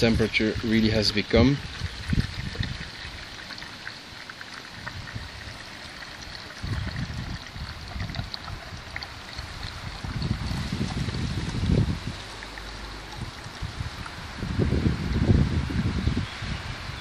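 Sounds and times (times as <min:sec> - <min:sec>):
water trickling into container: 0:00.0 - 0:17.0
low rumbling: 0:09.6 - 0:16.2.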